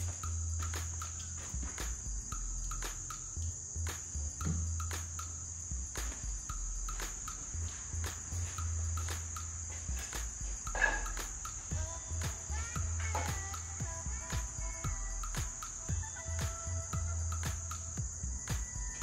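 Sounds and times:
low rumble: 0.0s - 13.1s
high-pitched insect drone: 8.4s - 19.0s.

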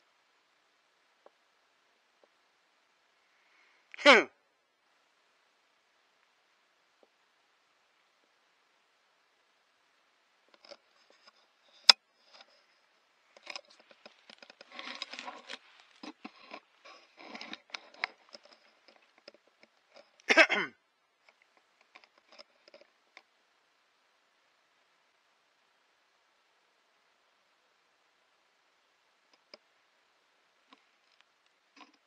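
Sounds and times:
rustling and crackling in dry leaves: 13.2s - 16.8s.

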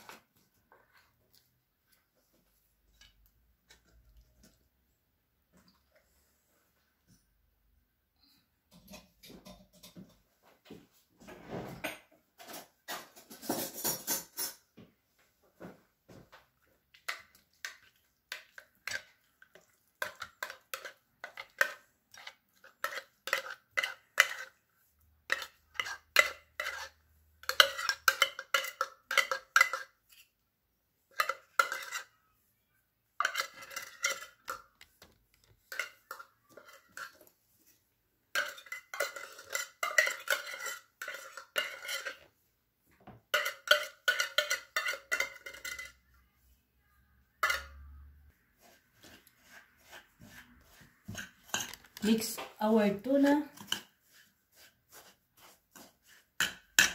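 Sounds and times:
metal cans clinking on glass bowl: 33.2s - 34.8s, 38.3s - 42.2s, 43.3s - 46.0s, 47.4s - 47.9s.

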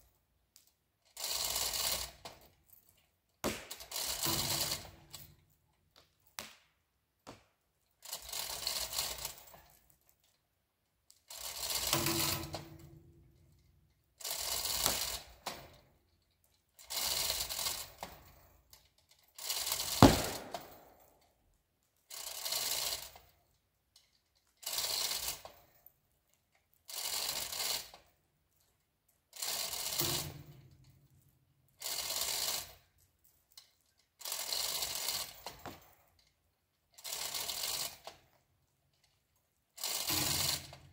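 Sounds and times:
hoist chain clattering: 1.1s - 5.6s, 8.0s - 10.4s, 11.2s - 21.2s, 39.8s - 40.9s
sharp loud knock: 20.0s - 20.8s.

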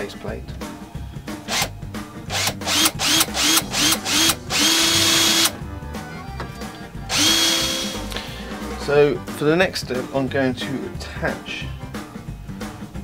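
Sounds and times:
cordless drill motor whining: 2.3s - 5.6s, 7.1s - 8.1s.

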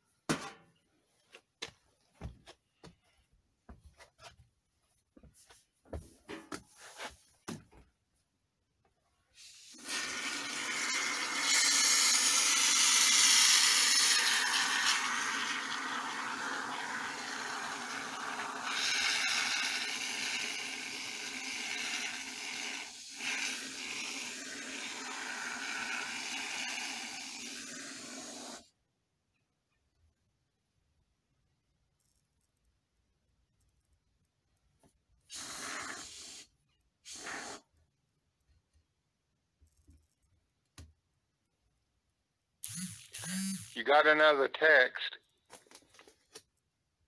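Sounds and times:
spray foam can hissing: 9.4s - 28.6s, 35.3s - 37.7s, 42.6s - 43.8s.

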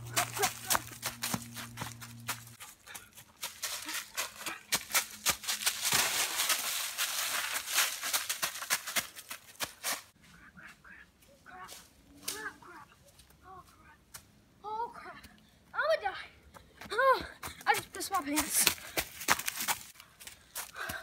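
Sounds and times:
footsteps crunching dry leaves: 0.0s - 10.2s.

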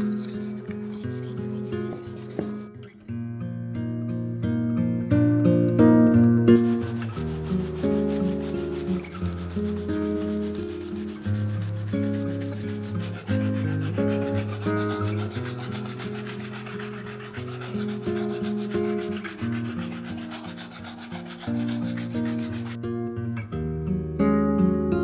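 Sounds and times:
brush rubbing on leather: 0.0s - 2.7s, 6.6s - 22.8s.

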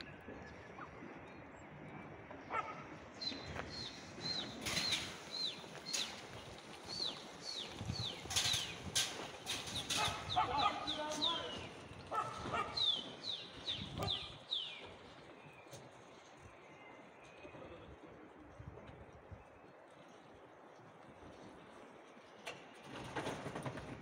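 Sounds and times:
rustles: 3.3s - 16.7s.

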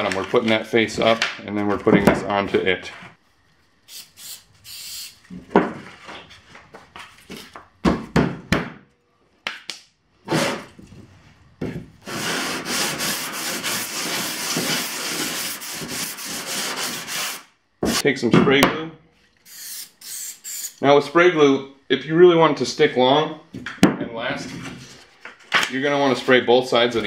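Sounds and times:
aerosol spray can hiss: 3.9s - 5.2s, 19.5s - 20.7s.

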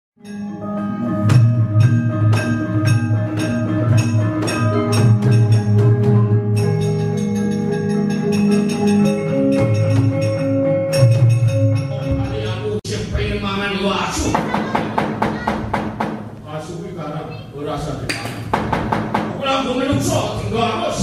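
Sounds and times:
gamelan music: 0.2s - 12.8s.

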